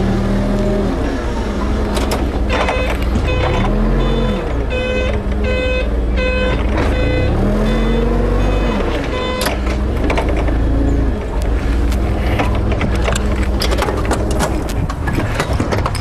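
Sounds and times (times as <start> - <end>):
forklift engine revving: 0.0 - 15.6
reversing alarm beeping: 2.5 - 9.8.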